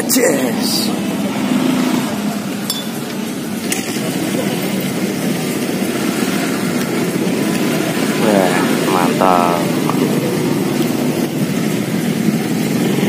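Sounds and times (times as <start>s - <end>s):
street traffic hum: 0.0s - 13.0s
metal spoon clinking against bowl: 2.7s - 3.0s.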